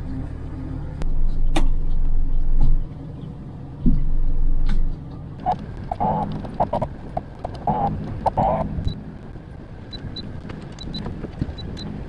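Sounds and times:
boat motor running: 0:05.4 - 0:09.2
wind noise: 0:05.5 - 0:12.0.

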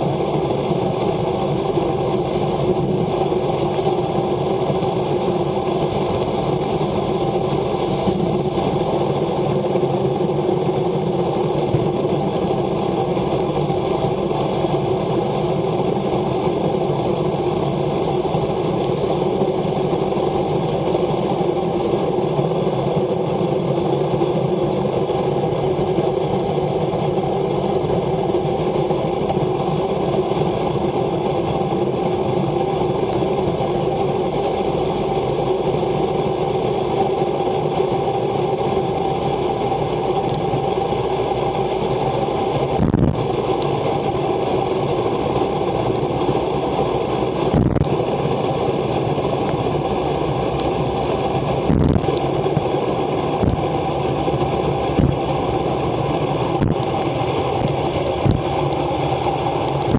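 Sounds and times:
wet road noise: 0:38.8 - 0:59.9.

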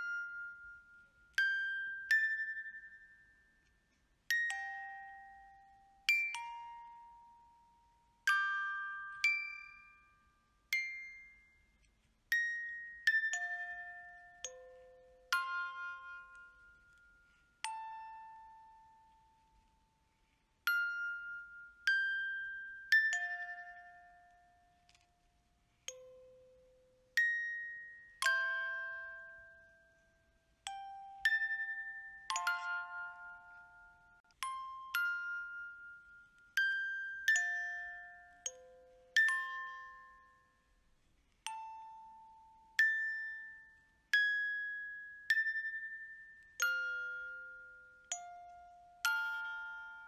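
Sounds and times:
gentle chiming bell notes: 0:25.9 - 0:40.8, 0:41.4 - 0:50.0.

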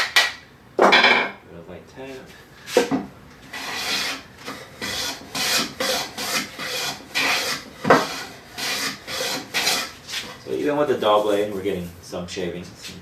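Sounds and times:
hand plane scraping along wood: 0:03.5 - 0:11.5.

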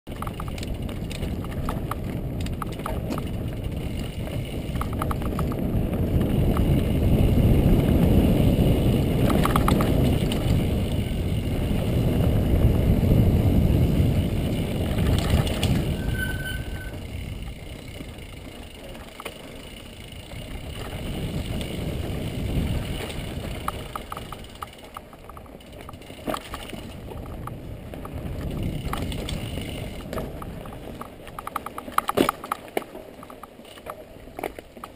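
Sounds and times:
wind on microphone: 0:00.1 - 0:19.1, 0:20.0 - 0:32.5
bike rattling over rocks: 0:00.1 - 0:34.9
tyres on ground: 0:14.3 - 0:34.9.

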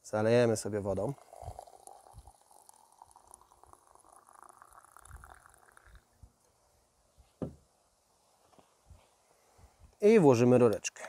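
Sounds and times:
hot water pouring into gourd: 0:00.4 - 0:06.2
thermos knock on wooden deck: 0:07.4 - 0:07.6.

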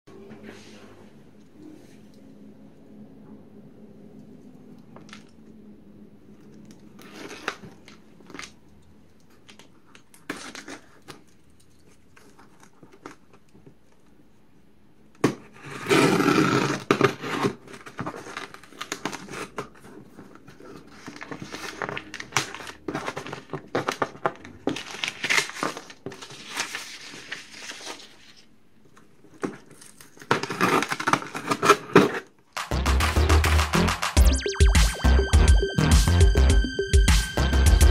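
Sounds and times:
packing tape tearing: 0:29.6 - 0:32.2.

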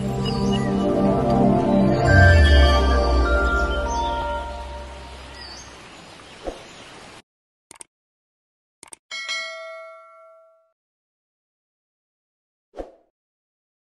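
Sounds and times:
outro music: 0:00.0 - 0:05.4
short clicks: 0:07.7 - 0:07.9, 0:08.8 - 0:09.0
bright bell ding: 0:09.1 - 0:10.7.

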